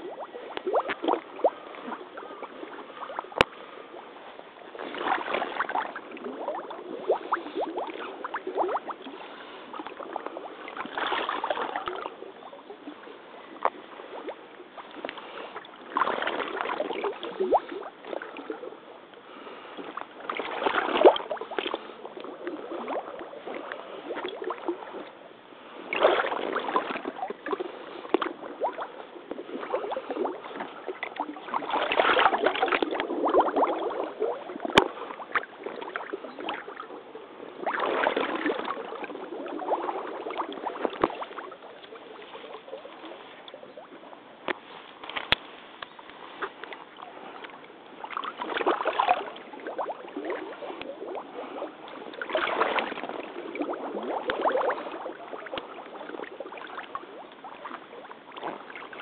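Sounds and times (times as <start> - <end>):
water sloshing around wading legs: 0.0 - 59.0.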